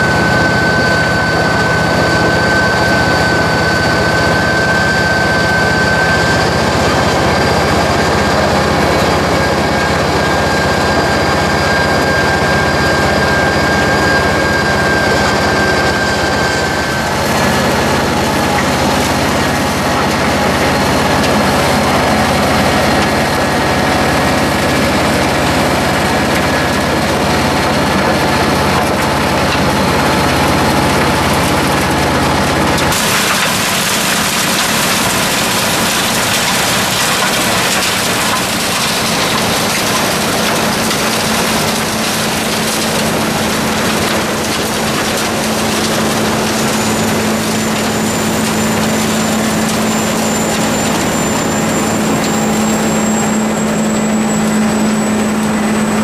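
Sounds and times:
diesel engine low hum: 0:00.0 - 0:56.0
milling rotor grinding asphalt: 0:00.0 - 0:56.0.

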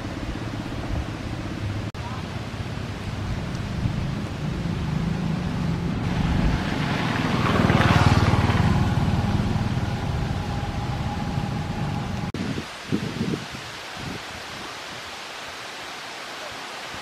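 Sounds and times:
vehicle passing by: 0:03.7 - 0:12.3.

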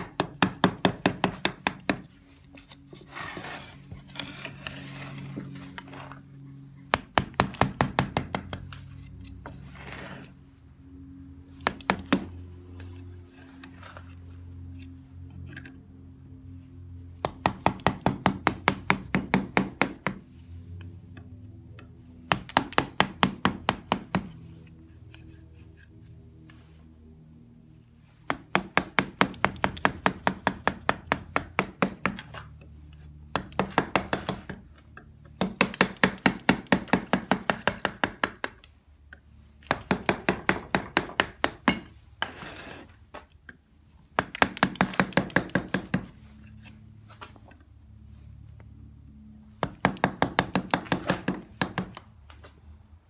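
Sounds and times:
mallet tapping carving gouge: 0:22.3 - 0:25.4, 0:35.3 - 0:38.7, 0:39.6 - 0:42.4, 0:44.2 - 0:46.7.

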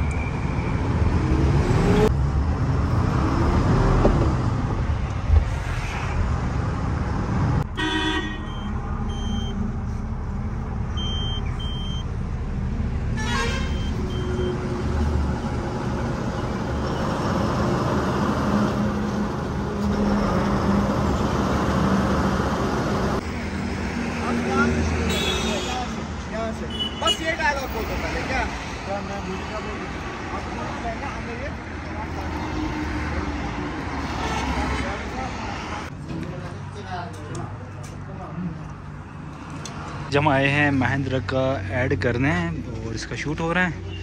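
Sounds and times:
truck horn toots: 0:07.7 - 0:09.4, 0:13.1 - 0:14.6
short high beeps: 0:08.4 - 0:09.6, 0:11.0 - 0:12.0.

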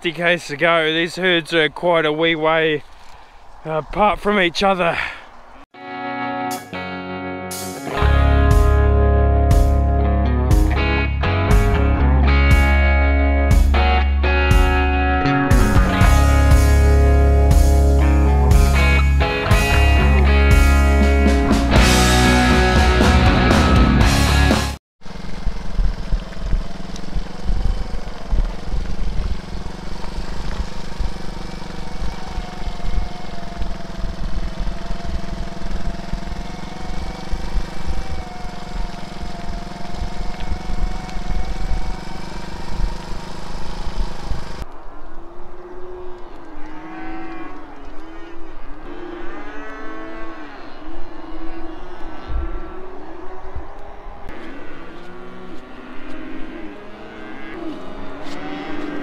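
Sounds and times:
motorbike engine running: 0:15.5 - 0:44.6
cows mooing: 0:26.8 - 0:43.0, 0:45.5 - 0:59.0.

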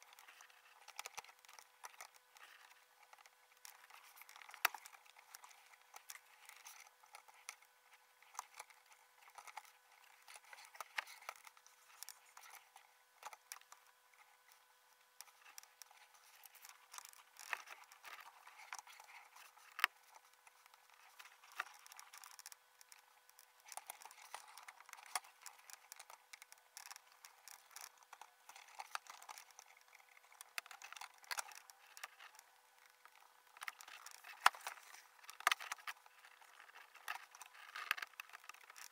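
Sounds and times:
faint hum: 0:00.0 - 0:38.9
instruments clicking and scratching: 0:00.0 - 0:38.9.

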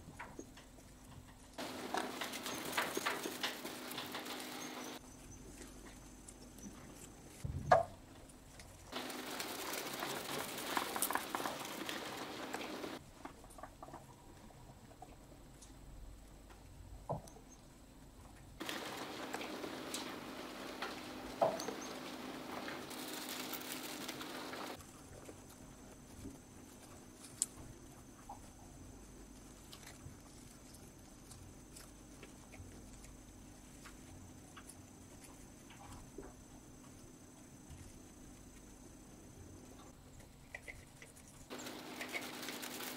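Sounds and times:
mouse rustling in straw bedding: 0:01.6 - 0:07.5, 0:08.5 - 0:13.0, 0:18.6 - 0:28.1, 0:41.0 - 0:42.9.

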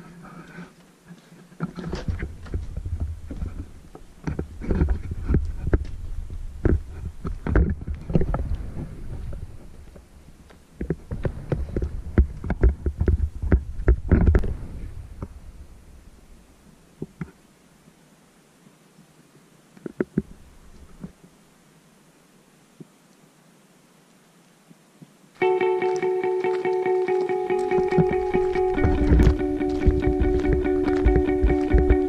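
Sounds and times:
footsteps on wooden boards: 0:00.8 - 0:06.0, 0:25.4 - 0:32.0.

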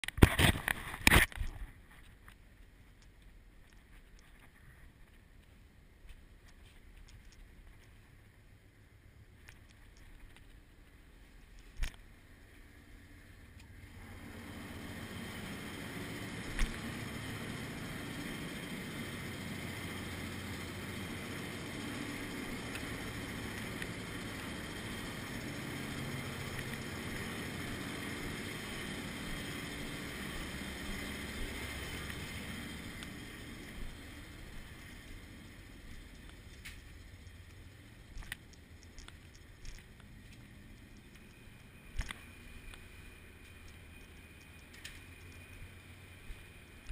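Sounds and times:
ship engine rumble and hiss: 0:12.8 - 0:38.1.

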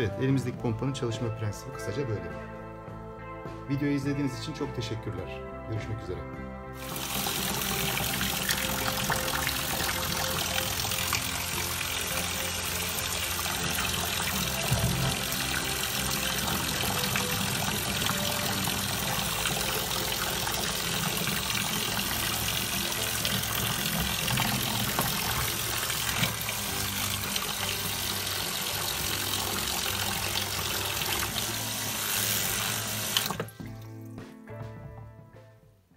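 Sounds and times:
pump humming: 0:06.8 - 0:33.7
water splashing into tub: 0:06.8 - 0:34.0.

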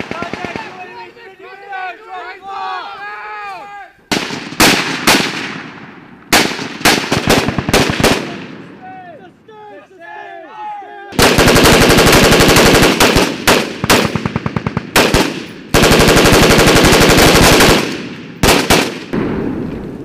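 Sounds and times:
automatic gunfire: 0:00.0 - 0:00.8, 0:04.1 - 0:08.6, 0:11.2 - 0:19.2.

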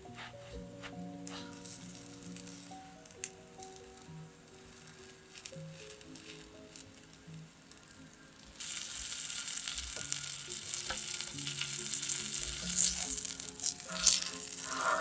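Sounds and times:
soft background music: 0:00.0 - 0:15.0
tortilla sizzling on griddle: 0:01.6 - 0:15.0
tongs handling noises: 0:04.6 - 0:07.2, 0:12.6 - 0:15.0.

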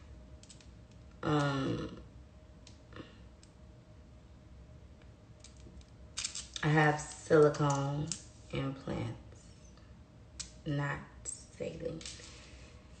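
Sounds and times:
woman humming or clearing throat: 0:01.2 - 0:02.1.

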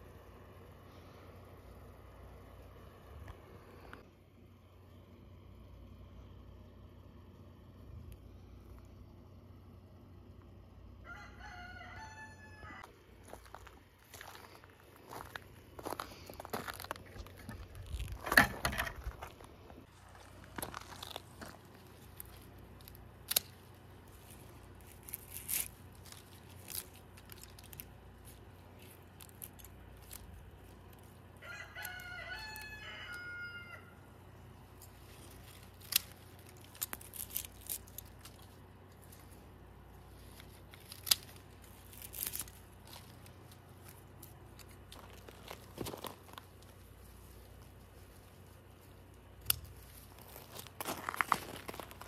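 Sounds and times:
rooster crowing: 0:11.0 - 0:12.9, 0:31.4 - 0:34.0
sharp clicks and rustles: 0:34.5 - 0:52.0.

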